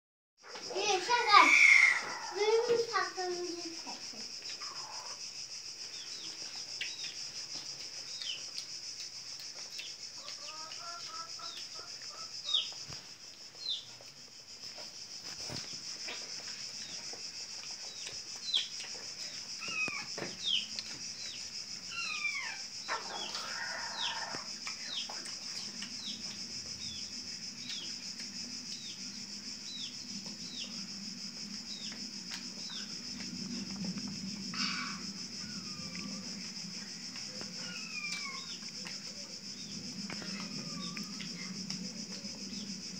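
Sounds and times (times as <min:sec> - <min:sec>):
steady high-pitched hiss: 0:00.4 - 0:42.9.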